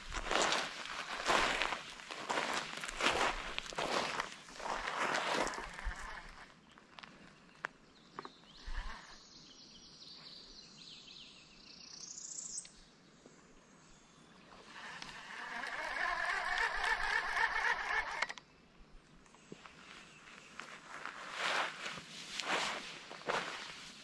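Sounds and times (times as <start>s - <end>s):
fishing reel whirring: 5.4s - 6.5s, 14.6s - 18.4s.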